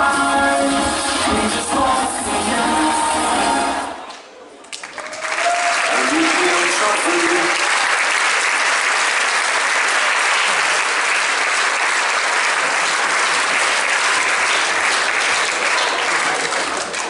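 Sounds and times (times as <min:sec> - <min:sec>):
audience applauding: 0:04.7 - 0:17.0.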